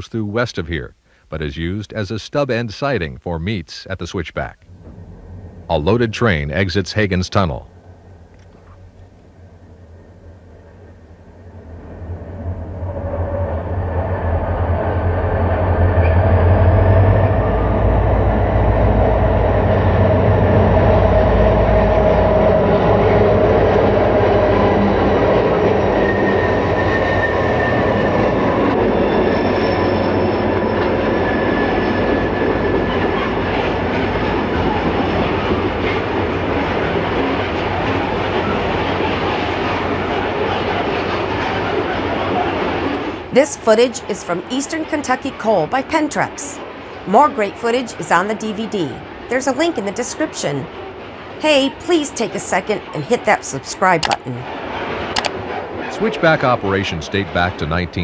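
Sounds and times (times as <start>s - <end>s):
diesel locomotive engine rumble: 4.4s - 58.0s
rolling rumble and clatter of hoppers: 4.6s - 19.4s.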